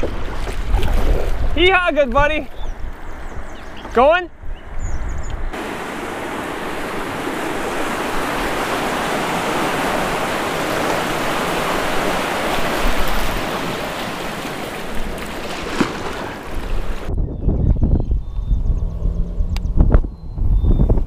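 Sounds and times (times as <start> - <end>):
river water rushing: 5.5 - 17.1.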